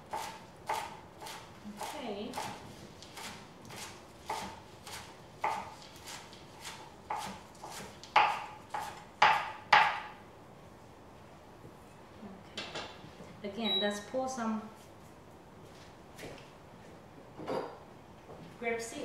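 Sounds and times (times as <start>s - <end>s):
knife chopping on cutting board: 0.1s - 10.2s.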